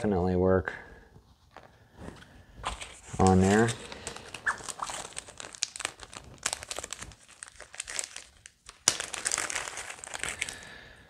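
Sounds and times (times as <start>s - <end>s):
packaging crinkling: 2.6s - 11.0s.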